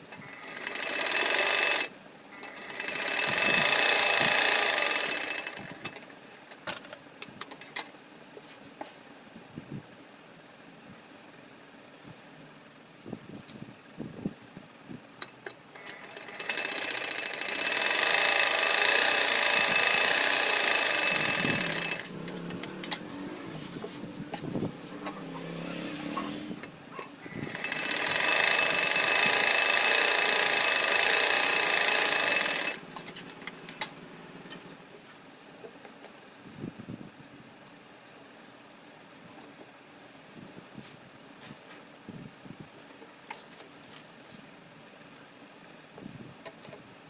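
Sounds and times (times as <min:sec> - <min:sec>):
sewing machine stitching: 0:00.1 - 0:06.0, 0:15.8 - 0:34.0.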